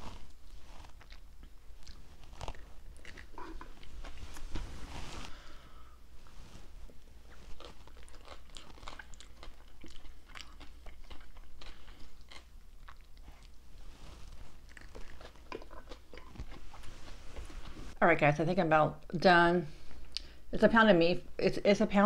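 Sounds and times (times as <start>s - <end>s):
person biting and chewing: 0.0s - 4.5s, 7.0s - 13.6s, 14.3s - 17.8s.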